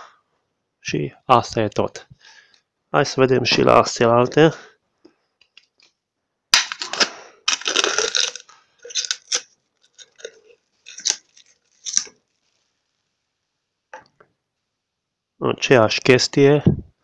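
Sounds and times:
cardboard tube crunching: 0:06.6 - 0:12.1.

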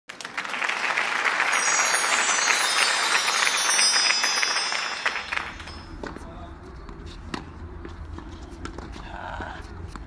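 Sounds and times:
crowd applause: 0:00.1 - 0:05.9
shimmering twinkling chime: 0:01.5 - 0:06.1.

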